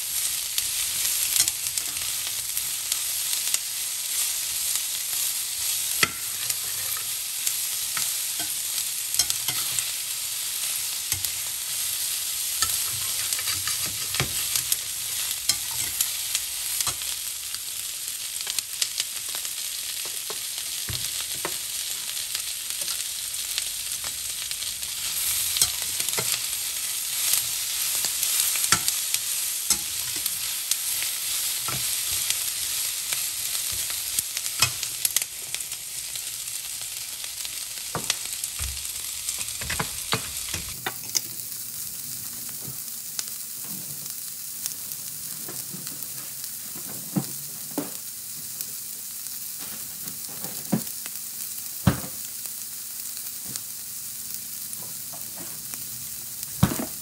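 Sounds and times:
chicken and peppers sizzling in a skillet: 0:00.0 - 0:57.0
metal turner scraping a pan: 0:06.0 - 0:07.2, 0:08.0 - 0:09.9, 0:12.5 - 0:17.1, 0:25.0 - 0:32.7.

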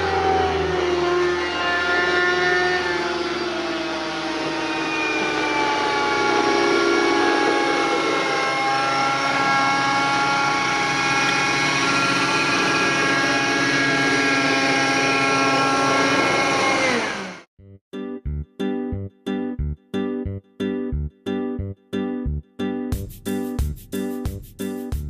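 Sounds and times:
rc helicopter high whine: 0:00.0 - 0:17.5.

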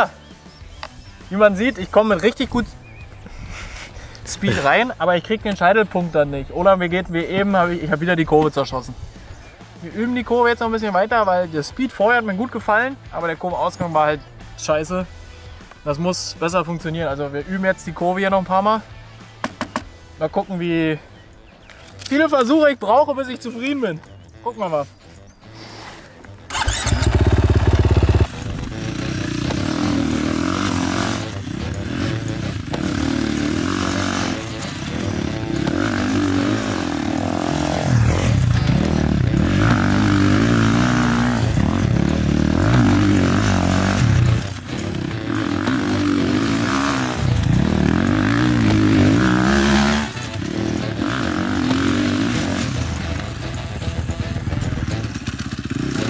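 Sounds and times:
dirt bike engine revving: 0:26.5 - 0:56.0.

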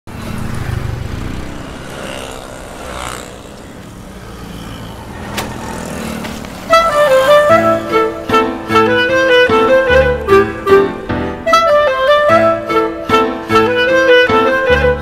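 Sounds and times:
auto-rickshaw driving past: 0:00.1 - 0:09.0
street traffic noise: 0:00.1 - 0:15.0.

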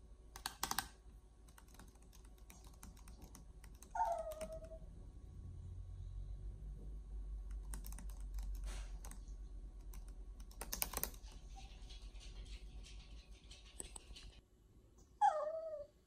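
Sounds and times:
steady low hum: 0:00.0 - 0:15.2
light clicks and taps: 0:09.8 - 0:14.4.

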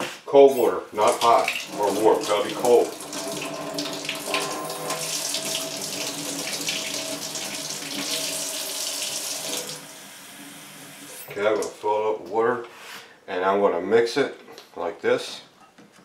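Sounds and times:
faucet water running into cup: 0:01.0 - 0:11.7.

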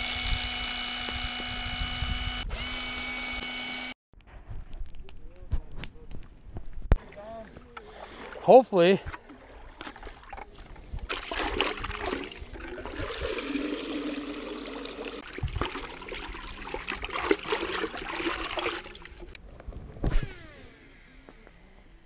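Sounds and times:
water sloshing in a bucket: 0:07.0 - 0:19.4.

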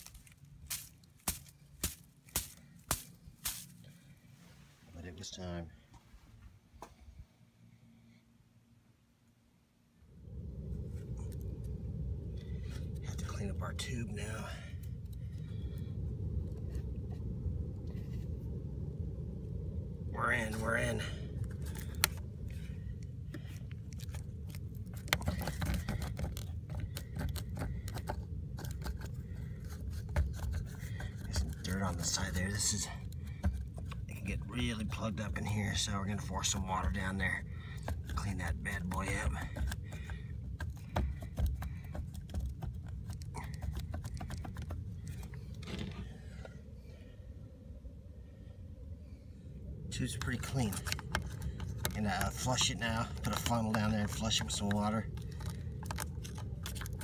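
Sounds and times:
scraping rustle: 0:00.0 - 0:05.1
low rumble: 0:09.6 - 0:57.0
clicks and scrapes: 0:23.3 - 0:35.0, 0:37.8 - 0:46.1, 0:50.1 - 0:57.0
clicking and tapping in plastic tube: 0:50.8 - 0:52.0, 0:53.2 - 0:57.0.

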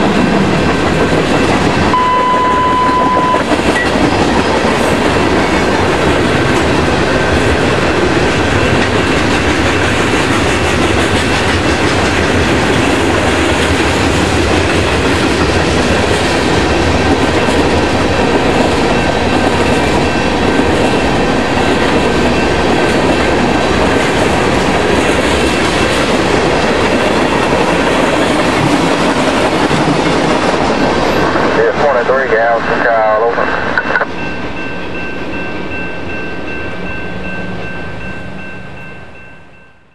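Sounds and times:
continuous train rumble: 0:00.0 - 0:39.9
train wheels clattering over rail joints: 0:03.4 - 0:31.5.

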